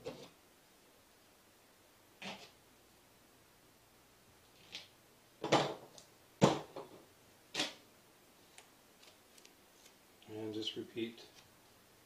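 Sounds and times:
objects set down on table: 5.4 - 7.0.

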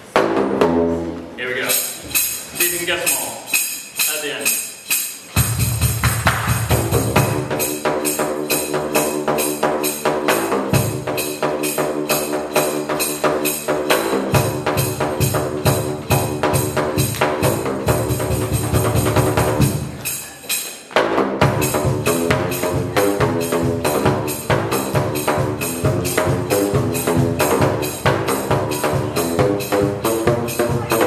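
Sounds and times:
drain-pipe percussion melody: 0.0 - 31.0
deep beat: 5.4 - 20.2, 21.0 - 31.0.

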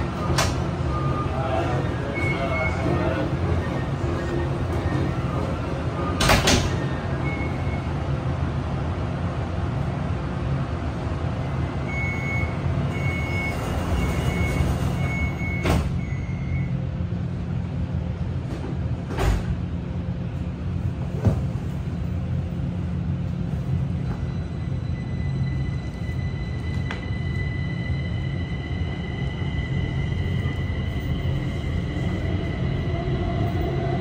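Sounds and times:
train equipment humming: 0.0 - 34.0
door warning beeps: 11.9 - 16.7.

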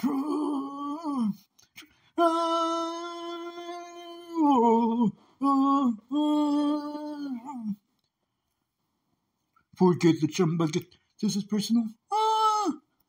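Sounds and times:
person singing wordless tune: 0.0 - 7.9.

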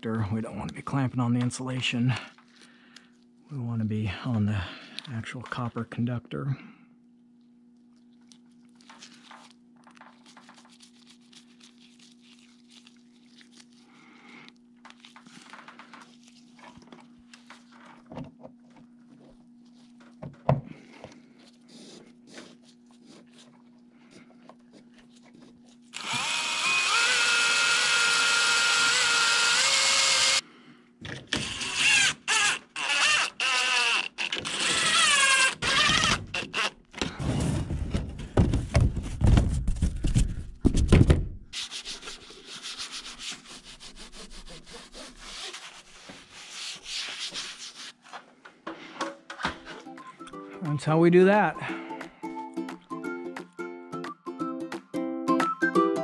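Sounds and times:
cordless drill driving into metal: 26.0 - 30.4, 34.2 - 36.7.

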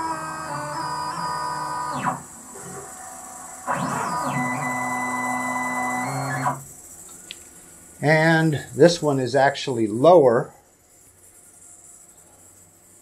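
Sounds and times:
stepper motors whining: 0.0 - 6.7.

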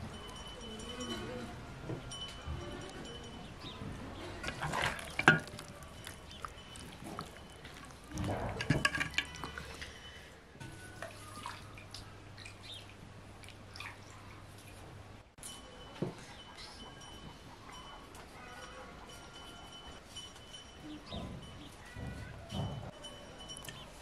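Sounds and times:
dishes knocking: 4.5 - 5.6, 8.4 - 9.4
water dripping and splashing: 4.5 - 9.9, 11.0 - 14.8.

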